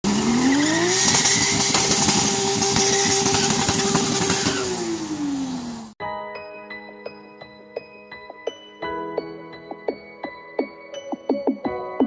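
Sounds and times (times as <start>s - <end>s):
engine revving with crackly rasp: 0.0s - 6.0s.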